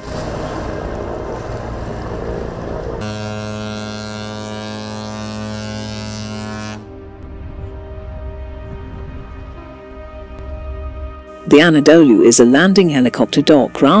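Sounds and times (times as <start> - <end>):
rushing water: 0.0 - 3.0
wind: 0.0 - 11.1
steady drone with overtones: 0.0 - 14.0.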